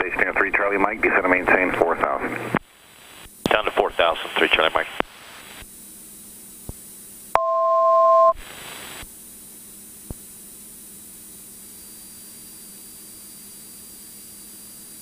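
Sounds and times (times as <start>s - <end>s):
intercom hum: 0.0s - 2.6s, 3.4s - 5.2s.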